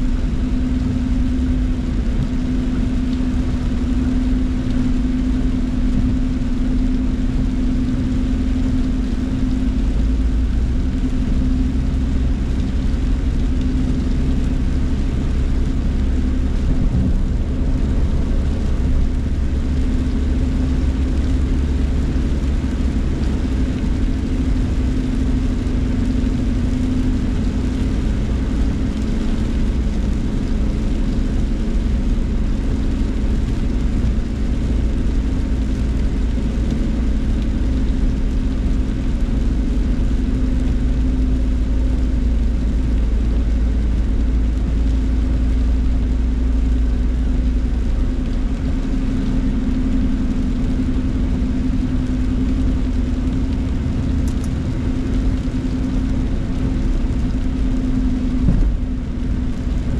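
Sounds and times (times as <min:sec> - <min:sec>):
car engine hum: 0:00.0 - 0:59.9
tyres on wet pavement: 0:00.0 - 0:59.9.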